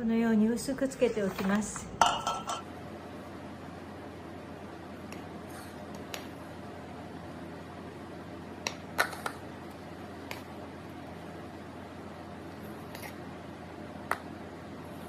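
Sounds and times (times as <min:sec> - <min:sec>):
low room hum: 0:00.0 - 0:15.0
spatula and bowl knocking metal: 0:02.0 - 0:02.6.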